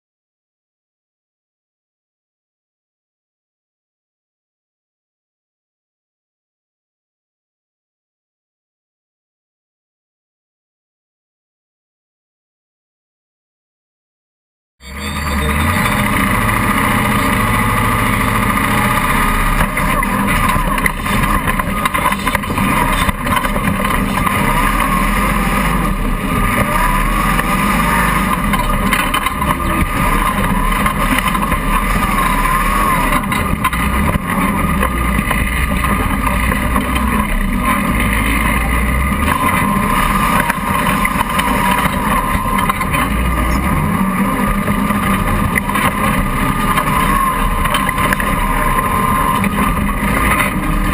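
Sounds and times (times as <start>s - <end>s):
off-road buggy engine running: 14.8s - 50.9s.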